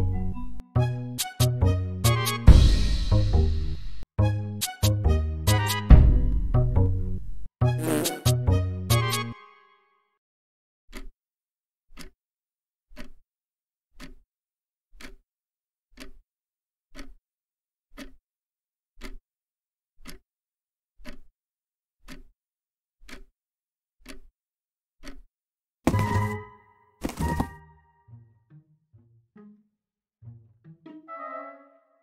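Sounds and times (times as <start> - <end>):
clock ticking: 10.9 - 11.1, 11.9 - 12.2, 12.9 - 13.2, 14.0 - 14.2, 14.9 - 15.2, 16.0 - 16.2, 16.9 - 17.2, 17.9 - 18.2, 19.0 - 19.2, 20.0 - 20.2, 21.0 - 21.3, 22.0 - 22.3, 23.0 - 23.3, 24.0 - 24.3, 25.0 - 25.3.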